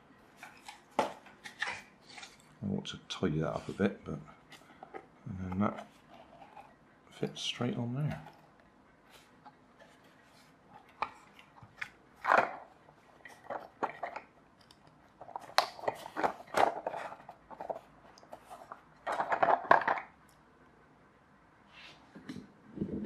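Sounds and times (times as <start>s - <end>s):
plastic parts clicking and scraping: 0.4s - 2.6s, 4.4s - 7.4s, 8.0s - 20.3s.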